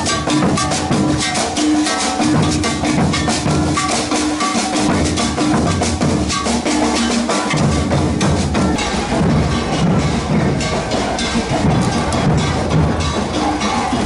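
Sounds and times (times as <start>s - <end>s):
snare drums: 0.0s - 14.0s
bass drums beating: 4.8s - 14.0s.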